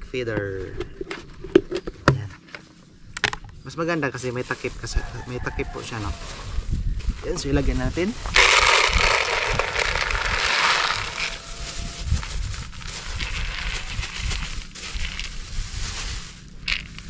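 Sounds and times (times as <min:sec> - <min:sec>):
plastic bag rustling: 0:05.6 - 0:17.0
grain pouring into bucket: 0:08.2 - 0:11.5, 0:12.7 - 0:17.0.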